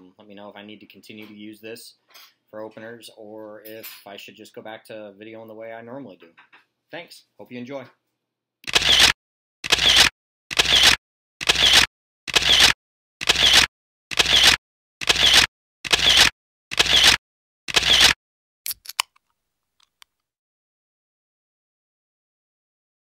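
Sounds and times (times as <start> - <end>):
camera shutter snaps: 8.6 - 19.1.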